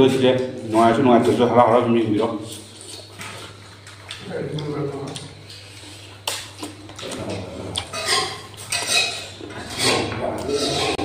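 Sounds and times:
wet chewing and lip-smacking: 2.5s - 9.6s
fingers scraping on steel plate: 7.9s - 11.0s.

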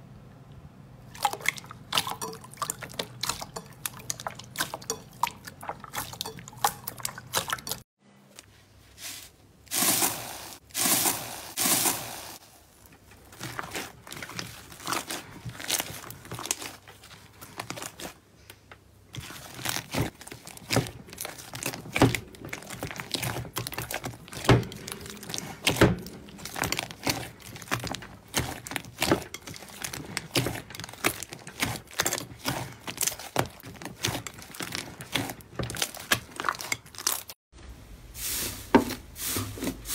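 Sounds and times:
slime squishing: 1.0s - 7.8s, 9.0s - 18.5s, 19.1s - 37.4s
slime crackling and popping: 19.2s - 37.3s.

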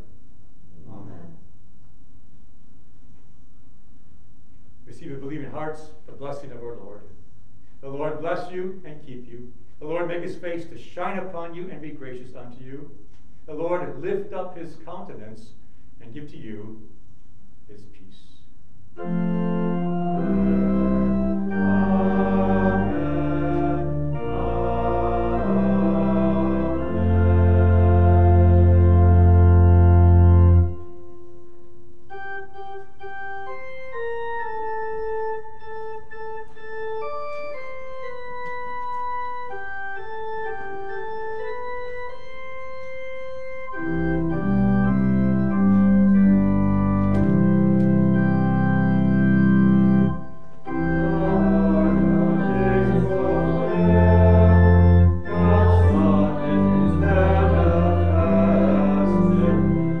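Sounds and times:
church organ playing: 9.8s - 12.7s, 18.9s - 60.0s.

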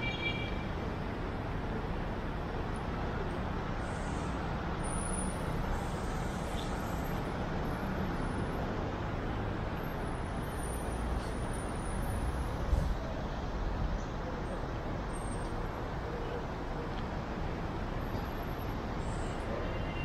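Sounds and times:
city traffic hum: 0.0s - 20.0s.

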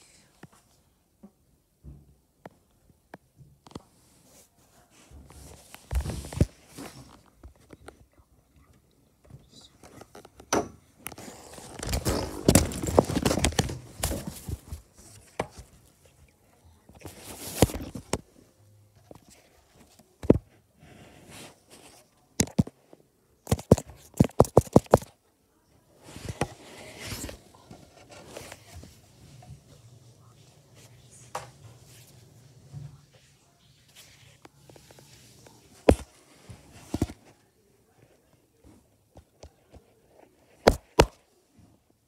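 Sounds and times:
phone rustling and bumping: 11.6s - 15.7s, 23.5s - 25.1s.

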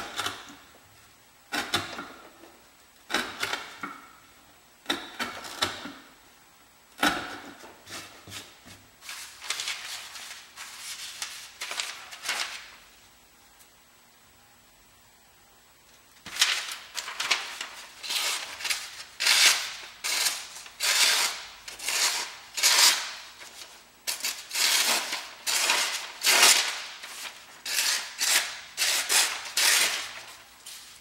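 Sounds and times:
knife slicing paper: 24.2s - 31.0s.

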